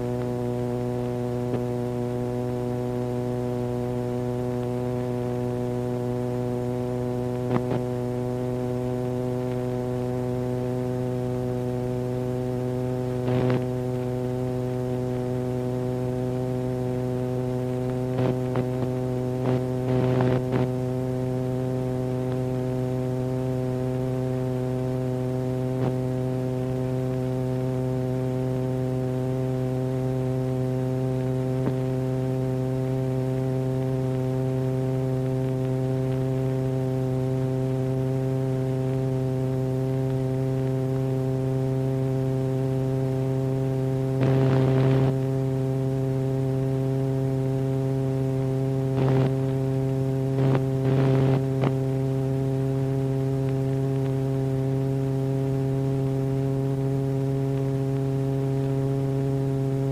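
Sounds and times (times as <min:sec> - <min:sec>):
buzzy electronic tone: 0:44.1 - 0:45.4, 0:48.6 - 0:53.3.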